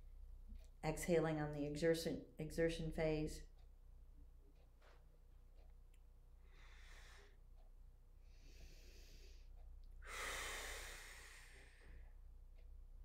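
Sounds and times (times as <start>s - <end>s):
woman breathing: 6.4s - 7.6s, 8.2s - 12.3s.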